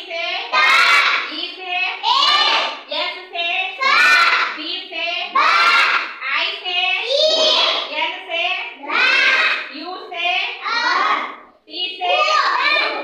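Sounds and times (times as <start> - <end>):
children chanting: 0.5 - 1.4, 2.1 - 2.9, 3.8 - 4.6, 5.3 - 6.2, 7.1 - 7.9, 8.8 - 9.7, 10.6 - 11.4, 12.0 - 13.0.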